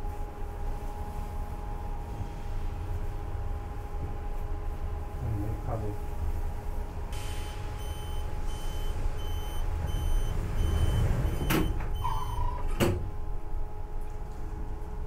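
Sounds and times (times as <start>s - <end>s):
low steady hum: 0.0s - 15.0s
brief lower tone: 7.3s - 12.6s
short high alert beeps: 7.4s - 12.4s.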